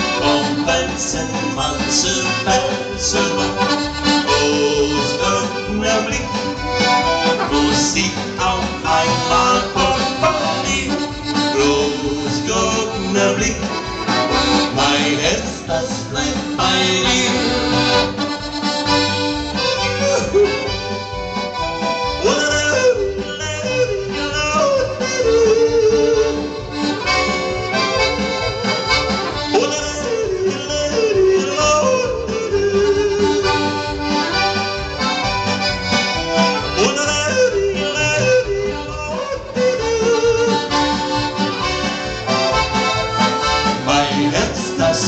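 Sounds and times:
man yodeling into a microphone: 0:00.0 - 0:06.5, 0:07.5 - 0:13.8, 0:14.7 - 0:17.9, 0:19.8 - 0:20.8, 0:22.2 - 0:26.5, 0:29.5 - 0:33.8, 0:36.6 - 0:40.9, 0:43.8 - 0:45.0
polka on accordion: 0:00.0 - 0:45.0
steady bass beat: 0:23.0 - 0:36.9.

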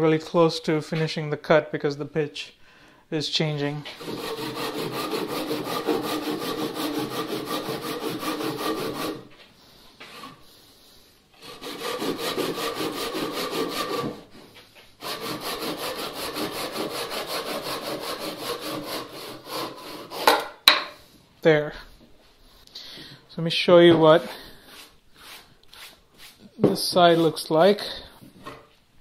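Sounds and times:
hand saw cutting wood: 0:03.9 - 0:09.3, 0:11.3 - 0:14.4, 0:15.0 - 0:20.6, 0:24.7 - 0:28.6.

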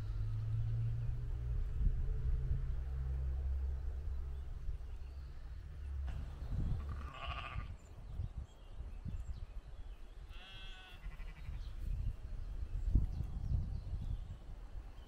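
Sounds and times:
low rumble: 0:00.0 - 0:08.4
animal bleating: 0:06.8 - 0:07.8, 0:10.3 - 0:11.7.

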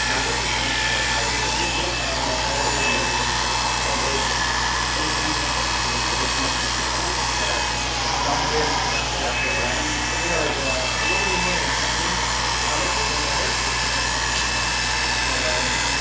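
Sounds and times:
hair clipper buzzing: 0:00.0 - 0:16.0.

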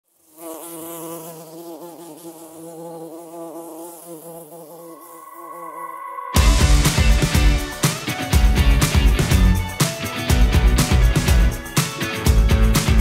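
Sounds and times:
honeybee buzzing: 0:00.1 - 0:07.7.

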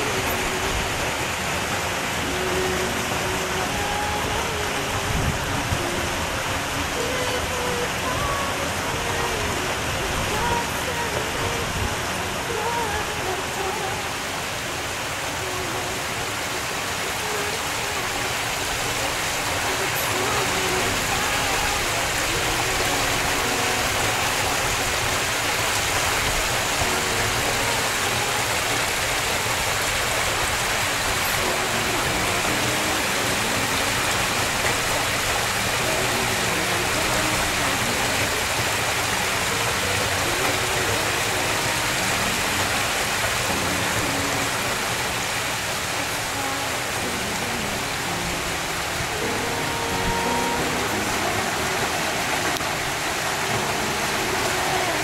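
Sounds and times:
waterfall splashing into pool: 0:00.0 - 0:55.0.

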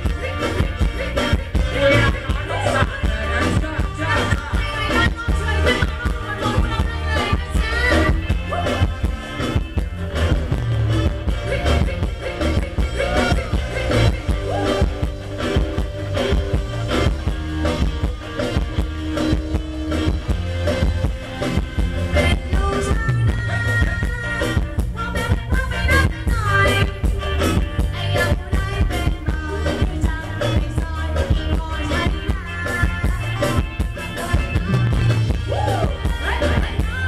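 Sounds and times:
person singing: 0:00.0 - 0:09.9, 0:11.3 - 0:15.1, 0:22.0 - 0:37.0
live dance band over speakers: 0:00.0 - 0:37.0.

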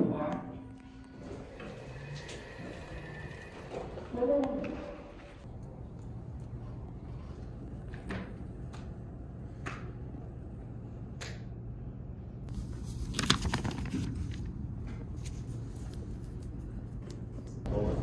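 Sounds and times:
notebook pages turning: 0:12.5 - 0:14.6.

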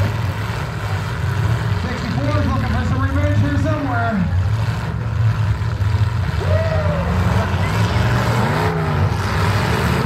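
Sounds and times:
car engines revving: 0:00.0 - 0:10.0
people shouting: 0:06.4 - 0:07.4.

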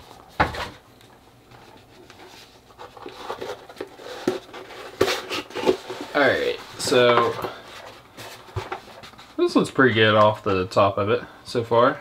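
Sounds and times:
cardboard box handling noise: 0:01.6 - 0:09.5.

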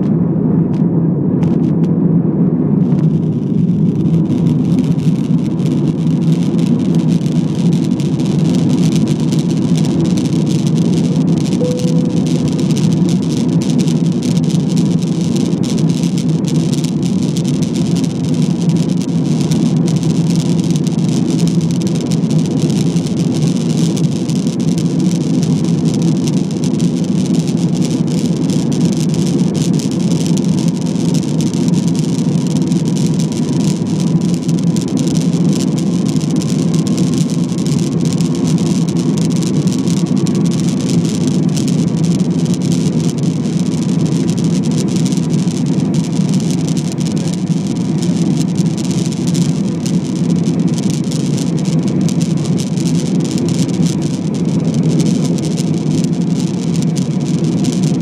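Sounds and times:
jet engines roaring in cabin: 0:00.0 - 0:58.0
faint rising whine: 0:10.8 - 0:14.3.

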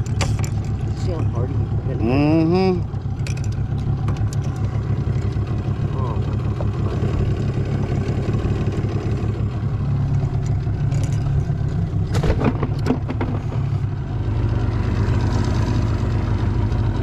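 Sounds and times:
sharp knocks and clatters: 0:00.0 - 0:01.4, 0:03.2 - 0:05.4, 0:10.1 - 0:13.7
outboard motor running: 0:00.0 - 0:17.0.

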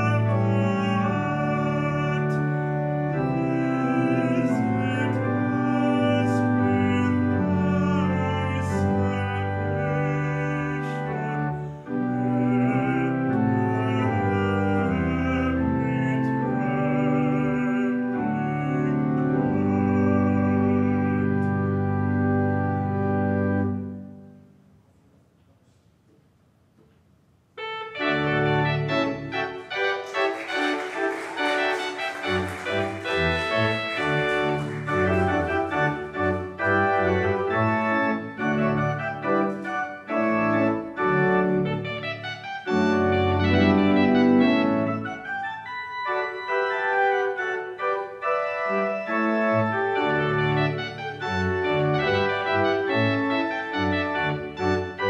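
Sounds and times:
church organ playing full chords: 0:00.0 - 0:24.6, 0:27.6 - 0:55.0.

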